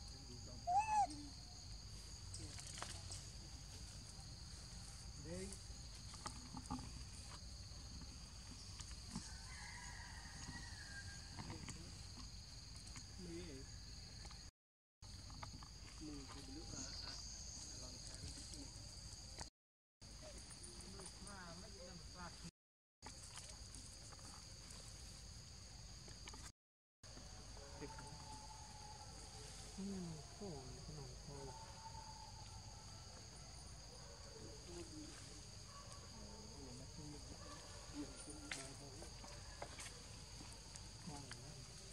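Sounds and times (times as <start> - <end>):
insect drone: 0.0 - 22.5, 27.1 - 41.9
short low animal calls: 0.6 - 1.3.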